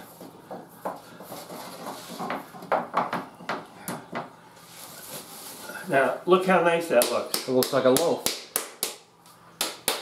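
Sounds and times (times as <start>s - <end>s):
hand rubbing metal pan: 1.1s - 2.5s.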